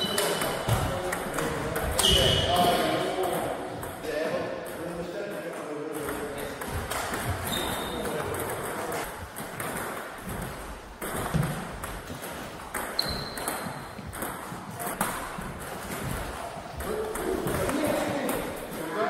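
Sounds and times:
table tennis ball tapping: 0:05.9 - 0:18.6
short high squeaks: 0:07.4 - 0:08.1, 0:13.0 - 0:13.7.

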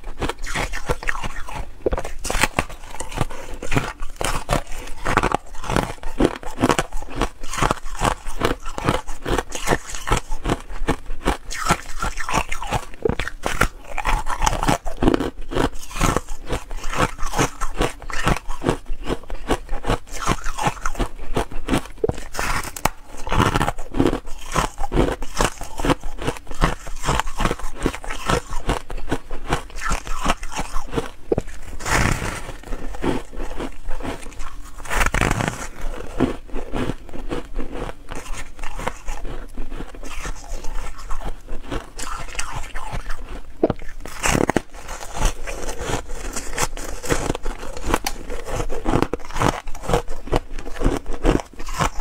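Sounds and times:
ice crunching: 0:00.2 - 0:10.6, 0:29.5 - 0:39.4, 0:40.0 - 0:52.0.

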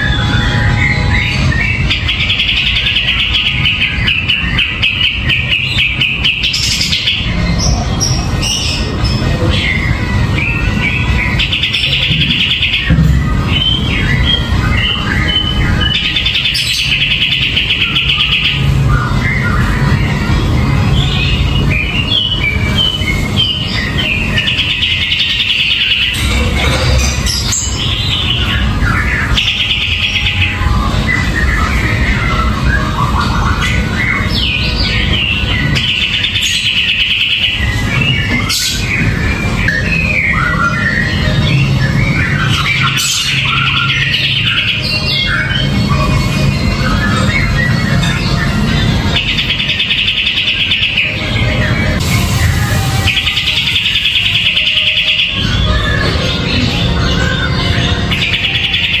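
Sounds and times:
bulbul chattering song: 0:00.0 - 0:59.0
rapid buzzy bird trill: 0:00.0 - 0:59.0.

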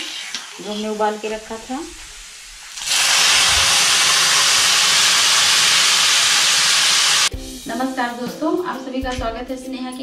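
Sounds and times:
leaves sizzling in hot oil: 0:00.0 - 0:07.3.

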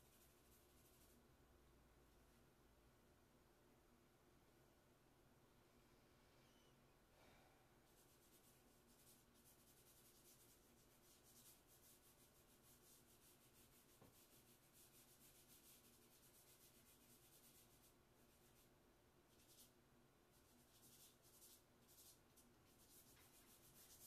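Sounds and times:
charcoal scratching on paper: 0:00.0 - 0:01.2, 0:07.9 - 0:18.7, 0:19.3 - 0:19.7, 0:20.3 - 0:24.0.

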